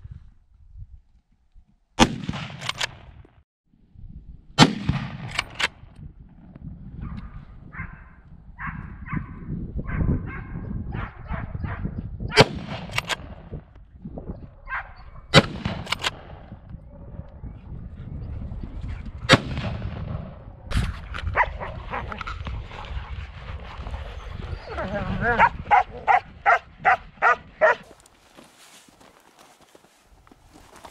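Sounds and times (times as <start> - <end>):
wind on microphone: 0.0 - 1.2, 3.8 - 27.9
rifle shots: 2.0 - 3.1, 4.6 - 5.8, 12.4 - 13.4, 15.3 - 16.4, 19.3 - 20.3
hounds barking: 7.0 - 12.0, 14.6 - 15.2, 21.3 - 22.2, 24.6 - 28.0.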